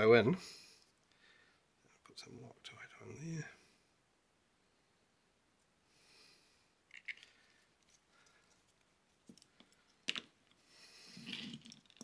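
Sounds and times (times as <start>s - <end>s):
light clicks and taps of tools: 6.9s - 10.6s.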